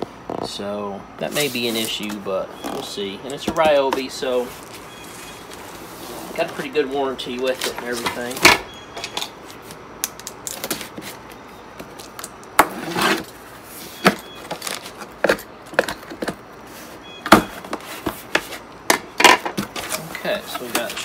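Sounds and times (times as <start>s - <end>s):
cardboard box scrapes and rustles: 4.4s - 6.7s, 12.7s - 14.0s.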